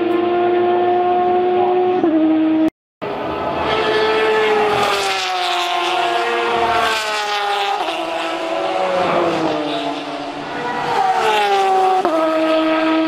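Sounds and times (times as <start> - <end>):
race car engine passing: 0.0 - 13.0.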